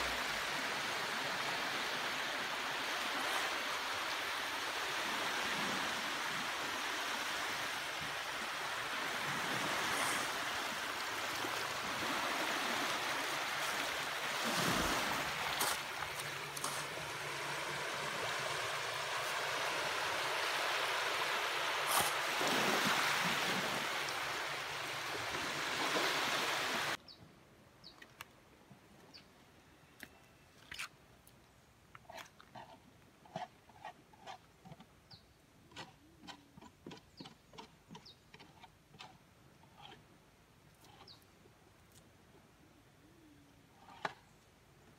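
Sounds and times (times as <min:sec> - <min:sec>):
waves lapping on rocky shore: 0:00.0 - 0:27.0.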